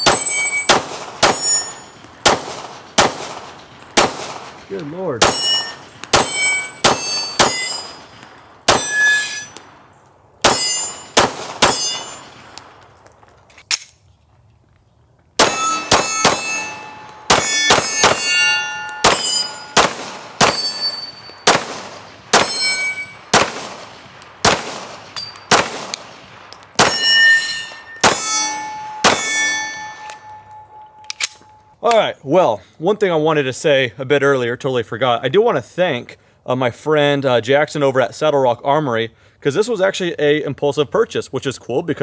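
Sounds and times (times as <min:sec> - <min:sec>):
steel targets ringing: 0:00.0 - 0:02.0, 0:04.6 - 0:09.7, 0:10.4 - 0:13.0, 0:15.4 - 0:21.6, 0:22.3 - 0:23.5, 0:24.2 - 0:25.7, 0:26.5 - 0:31.8
pistol shots: 0:00.0 - 0:09.8, 0:10.4 - 0:13.0, 0:15.4 - 0:31.5.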